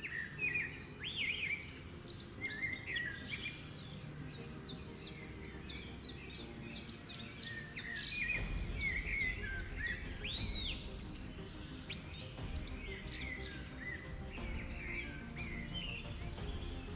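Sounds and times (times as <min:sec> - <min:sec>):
small birds chirping: 0:00.0 - 0:16.9.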